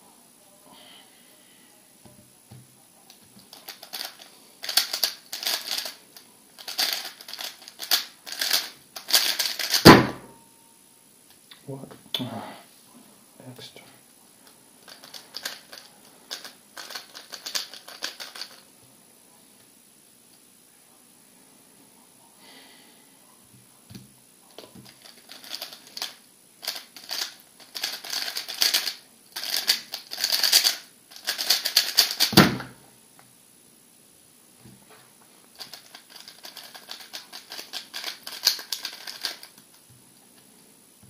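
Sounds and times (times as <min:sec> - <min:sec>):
plastic puzzle cube clatter: 0:03.4 - 0:06.0, 0:06.6 - 0:09.8, 0:14.8 - 0:18.6, 0:24.6 - 0:32.4, 0:35.6 - 0:39.8.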